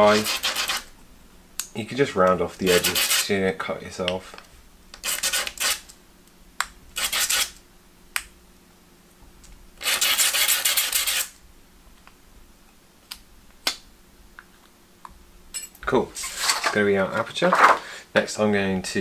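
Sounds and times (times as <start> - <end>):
metal scraping on abrasive paper: 0.0 - 0.9, 2.6 - 3.3, 5.0 - 5.8, 9.8 - 11.4, 16.2 - 16.7.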